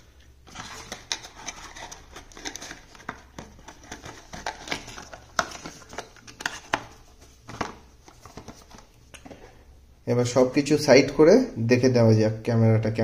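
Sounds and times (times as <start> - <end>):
cardboard rustling: 0.4 - 9.0.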